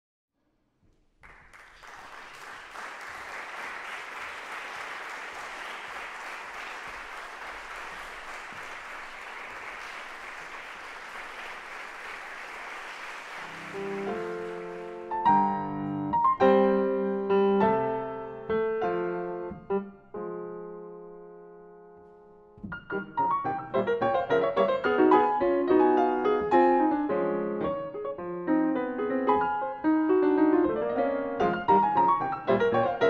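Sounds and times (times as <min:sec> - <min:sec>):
audience applauding: 0:01.2 - 0:15.4
grand piano chords: 0:13.4 - 0:33.0.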